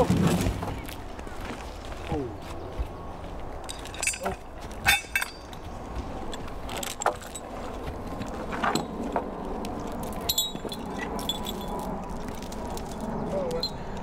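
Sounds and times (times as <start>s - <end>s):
metal chain clinking: 3.6s - 7.7s, 9.8s - 13.8s.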